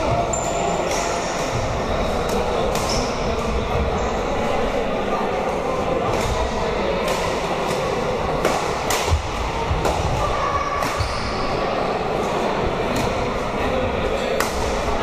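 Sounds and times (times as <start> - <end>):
din of games in sports hall: 0.0 - 15.0
rackets hitting shuttlecocks: 7.0 - 10.2.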